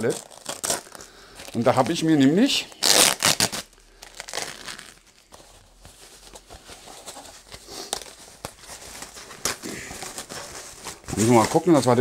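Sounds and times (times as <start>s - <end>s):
plastic wrap crinkling: 0.0s - 12.0s.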